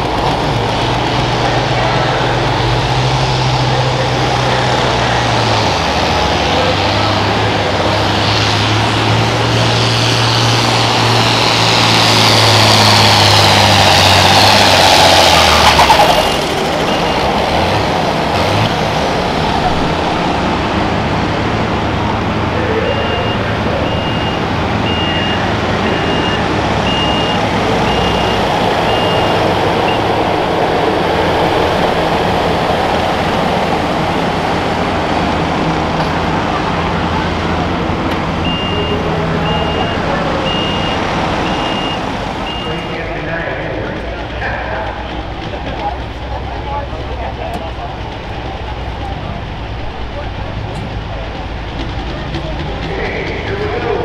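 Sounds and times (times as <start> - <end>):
diesel tractor engine and turbo whine: 0.0 - 54.0
backup alarm beeping: 22.7 - 30.2, 38.4 - 43.0.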